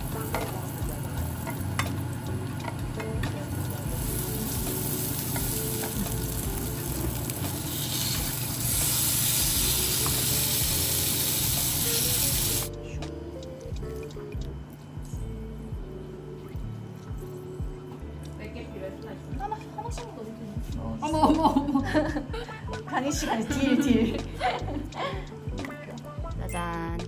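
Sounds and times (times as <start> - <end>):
food frying in a pan: 0.0 - 12.7
loud hissing sizzle: 0.0 - 12.8
utensil clicking against pan: 1.4 - 2.0, 2.6 - 3.4.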